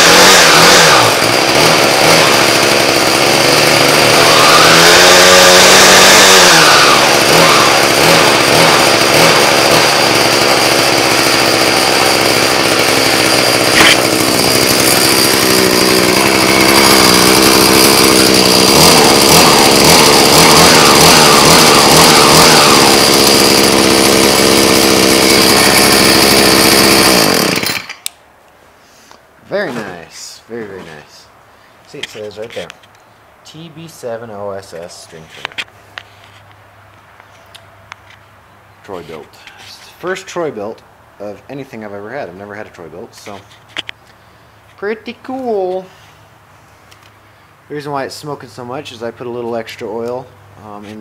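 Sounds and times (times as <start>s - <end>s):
string trimmer engine running: 0.0s - 28.1s.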